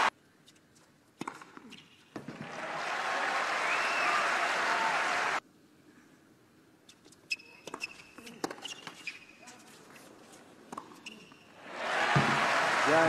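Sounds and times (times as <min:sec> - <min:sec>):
tennis shoes squeaking: 0:06.9 - 0:11.6.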